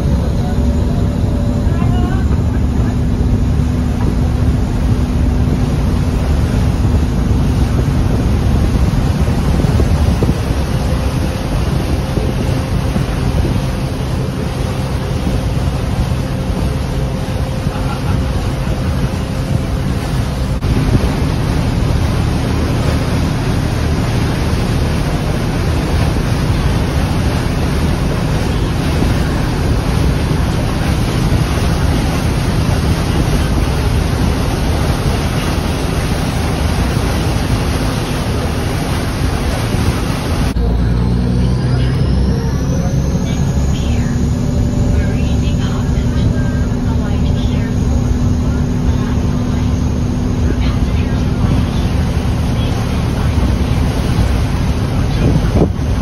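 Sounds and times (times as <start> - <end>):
boat engine humming: 0.0 - 56.0
water rushing along hull: 0.0 - 56.0
wind buffeting microphone: 0.0 - 56.0.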